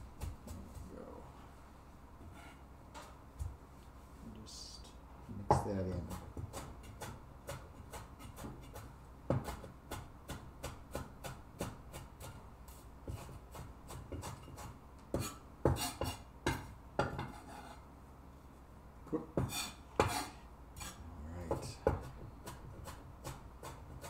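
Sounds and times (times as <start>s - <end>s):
cleaver chopping on wooden board: 5.5s - 12.4s, 21.5s - 24.0s.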